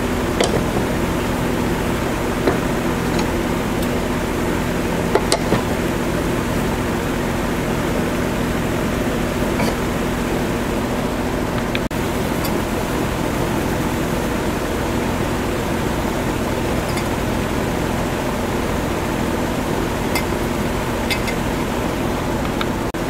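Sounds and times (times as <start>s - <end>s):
low hum: 0.0s - 22.9s
metal washer clicking on pipe: 21.1s - 21.4s.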